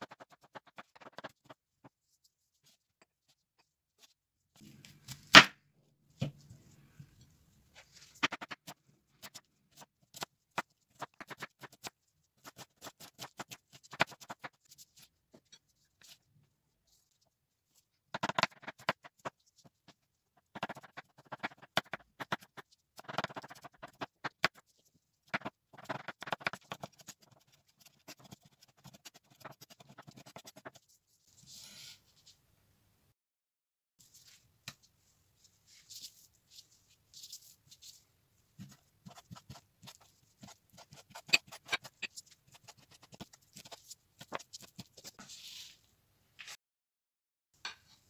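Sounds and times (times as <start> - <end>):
knife scraping board: 39.1 - 42.2.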